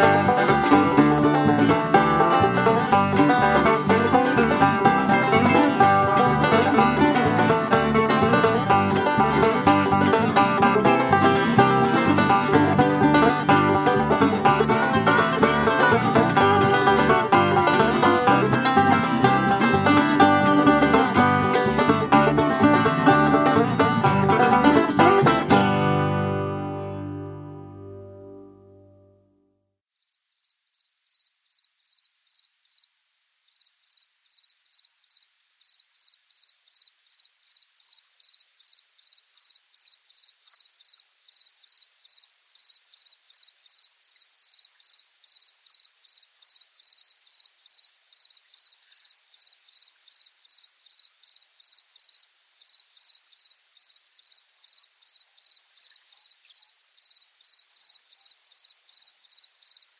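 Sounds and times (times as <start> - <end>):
cricket chirping: 30.0 - 59.9.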